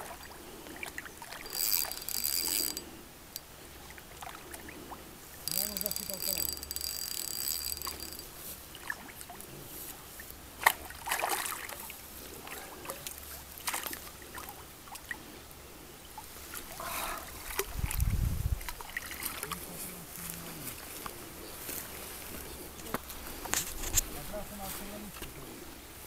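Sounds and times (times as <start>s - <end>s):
fish splashing in water: 10.6s - 15.2s.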